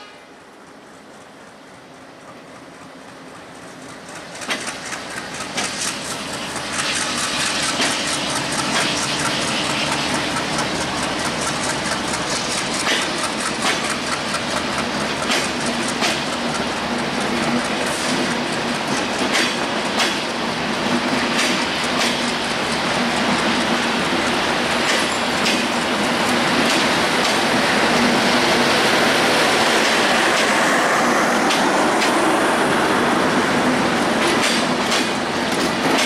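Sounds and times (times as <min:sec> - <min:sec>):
train wheels clacking over rail joints: 0:00.0 - 0:36.0.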